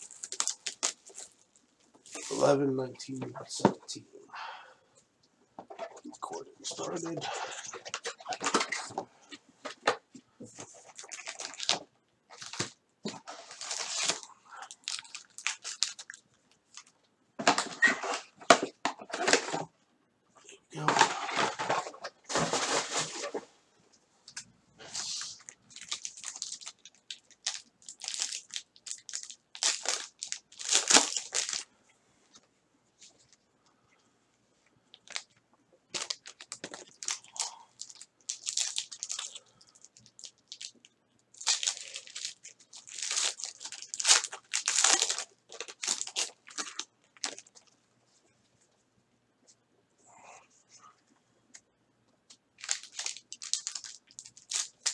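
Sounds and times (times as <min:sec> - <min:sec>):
foil wrappers tearing and crinkling: 0:00.0 - 0:02.5, 0:10.8 - 0:11.8, 0:12.4 - 0:16.2, 0:24.9 - 0:31.7, 0:35.9 - 0:40.7, 0:41.3 - 0:47.6, 0:52.6 - 0:54.9.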